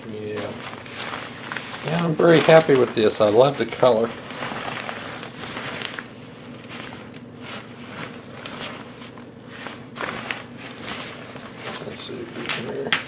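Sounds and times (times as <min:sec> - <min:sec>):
backpack fabric rustling: 0:00.3 - 0:12.8.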